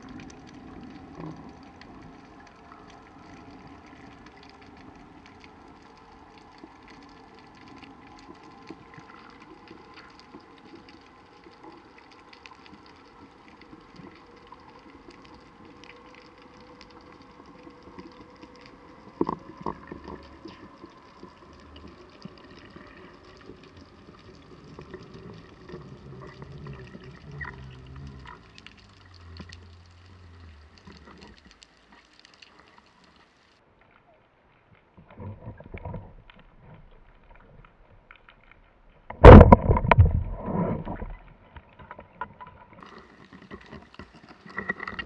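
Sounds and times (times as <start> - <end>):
underwater clicking crackle: 0.0 - 45.0
underwater knocks: 39.1 - 41.2.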